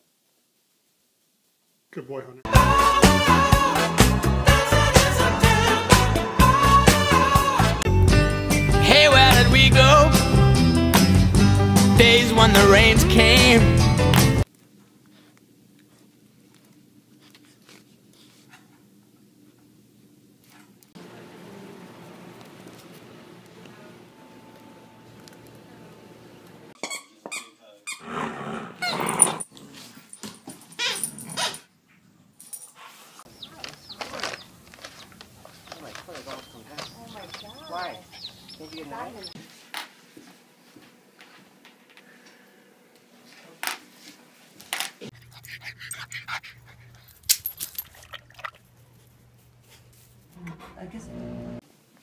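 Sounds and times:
dogs growling in play: 28.0s - 30.1s
dog sounds: 28.9s - 39.4s, 45.0s - 51.0s.

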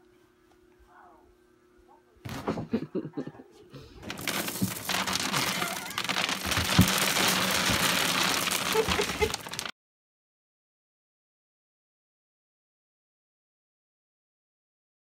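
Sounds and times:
plastic trash bag crinkling: 4.0s - 9.7s
thumps: 4.0s - 9.7s.

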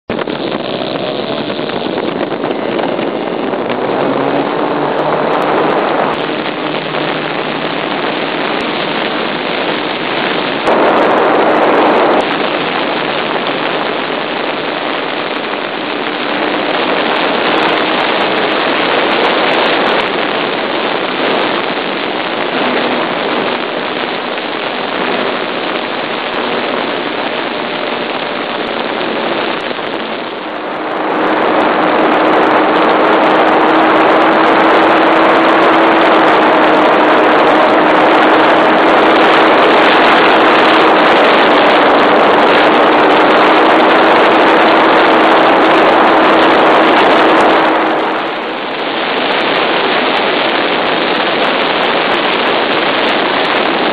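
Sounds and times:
model airplane engine running hard: 0.0s - 53.9s
rushing air: 0.0s - 53.9s.

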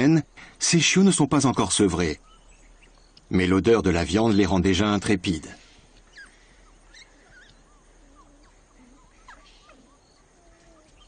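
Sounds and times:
pups squeaking and whining: 6.0s - 11.0s.

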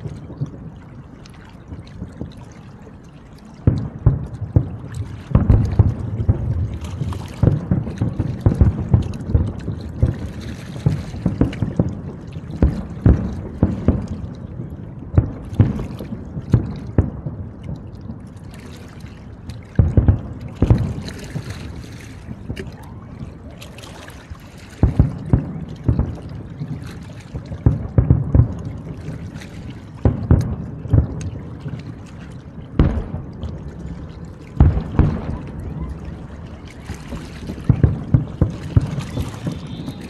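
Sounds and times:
fireworks booming: 3.7s - 12.0s, 12.6s - 14.3s, 15.1s - 17.4s, 19.8s - 22.6s, 24.8s - 26.8s, 27.6s - 29.3s, 30.0s - 31.5s, 32.7s - 40.0s.

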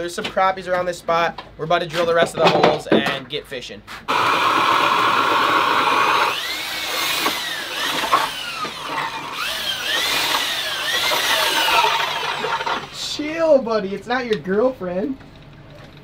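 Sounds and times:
electric drill whining: 4.1s - 13.0s.

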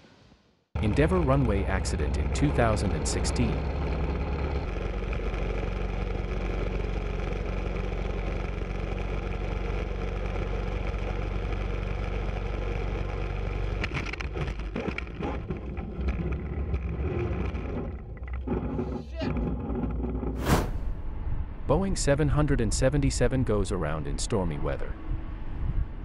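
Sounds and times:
plane piston engine droning: 0.8s - 11.6s.

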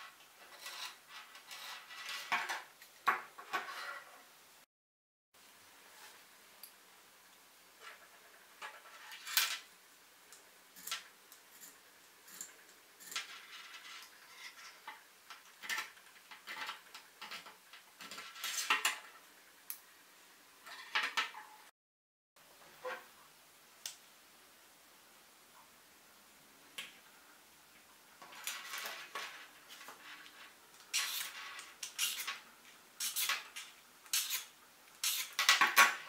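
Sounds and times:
sharpener scraping metal blade: 31.0s - 32.4s, 33.0s - 33.4s, 34.1s - 35.5s.

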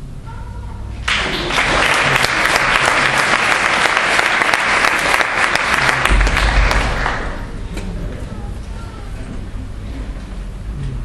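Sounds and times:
audience applauding: 1.0s - 7.6s
low thud: 6.1s - 7.6s.

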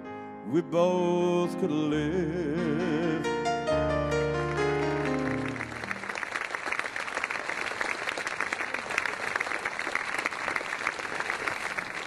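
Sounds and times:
sustained piano chord: 0.0s - 5.8s
audience applauding: 4.4s - 12.0s.

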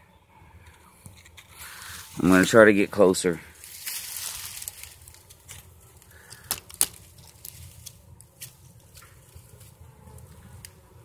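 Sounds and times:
rustling of brush and leaves: 1.0s - 11.0s
twig snaps: 3.8s - 10.8s.

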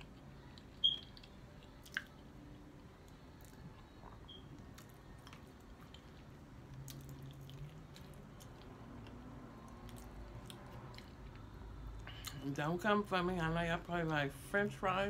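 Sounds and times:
person chewing food: 0.0s - 2.3s, 3.3s - 12.4s.

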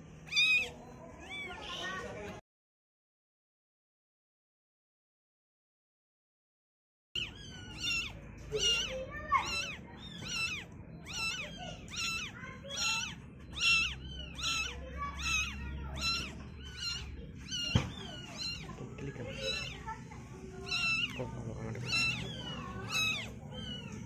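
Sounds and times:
kitten mewing: 0.2s - 1.8s, 7.2s - 24.0s.

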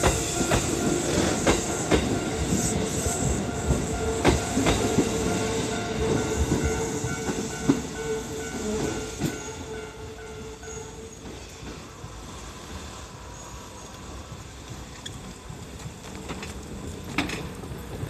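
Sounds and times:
electric train passing: 0.0s - 18.0s
wheels clacking over rail joints: 14.5s - 18.0s.

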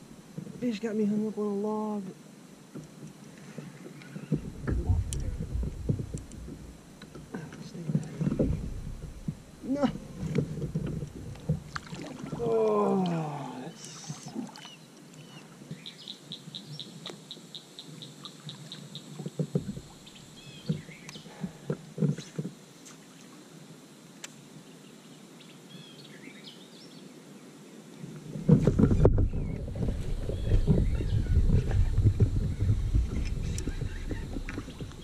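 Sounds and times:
birds calling: 3.4s - 7.2s, 11.7s - 21.6s, 28.8s - 35.0s
low knocks: 4.3s - 12.4s.

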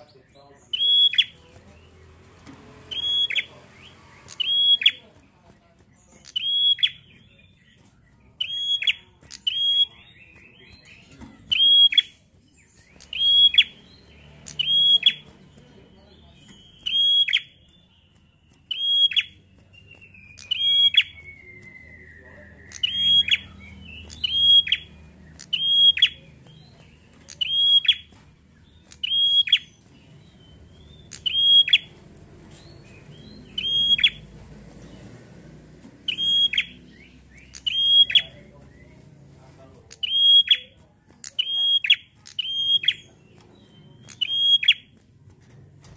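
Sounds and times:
bird sharp call notes: 0.7s - 1.4s, 2.8s - 5.0s, 36.0s - 38.5s, 40.0s - 43.1s, 44.0s - 44.9s.

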